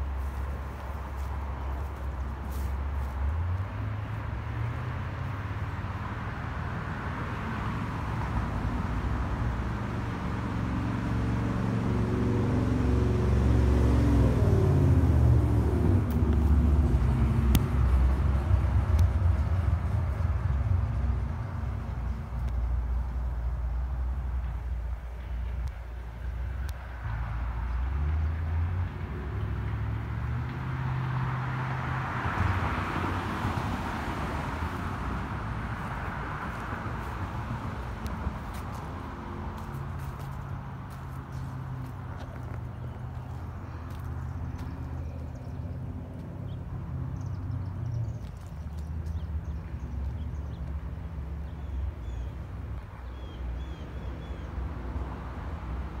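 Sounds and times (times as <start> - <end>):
low engine hum: 0.0 - 56.0
rushing road noise: 0.0 - 56.0.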